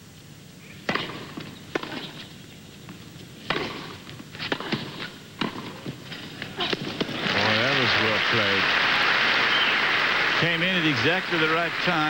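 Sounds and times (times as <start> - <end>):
racquets hitting tennis ball: 0.8 - 8.0
low stadium background: 0.8 - 12.0.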